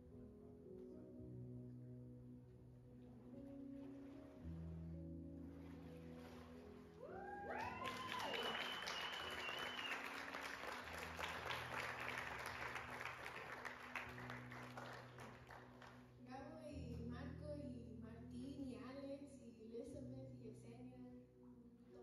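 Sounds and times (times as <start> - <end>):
soft background music: 0.0 - 22.0
whoops: 7.0 - 10.4
crowd cheering and clapping: 7.0 - 16.0.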